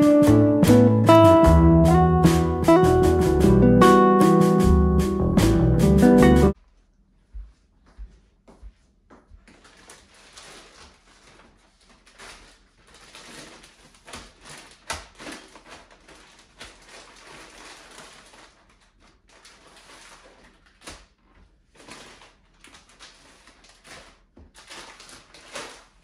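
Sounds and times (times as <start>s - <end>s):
plastic bags crinkling: 9.4s - 26.0s.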